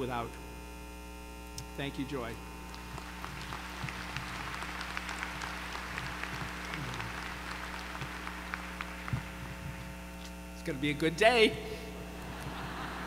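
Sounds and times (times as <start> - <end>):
low electrical hum: 0.0 - 13.0
audience applauding: 2.7 - 9.9, 12.2 - 13.0.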